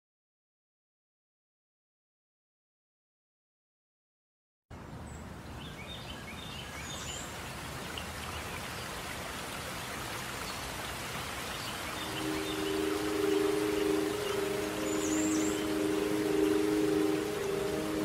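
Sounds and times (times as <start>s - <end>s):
rain-like steady hiss: 4.7s - 18.0s
high bird chirps: 12.0s - 18.0s
music with held tones: 12.0s - 18.0s.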